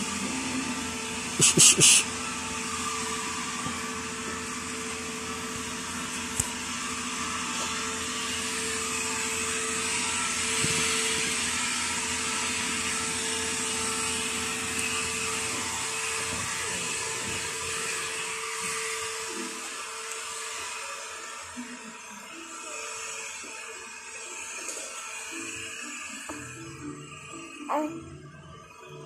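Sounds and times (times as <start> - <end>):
steady hum tone: 0.0 - 2.5
appliance motor whirring: 0.0 - 29.0.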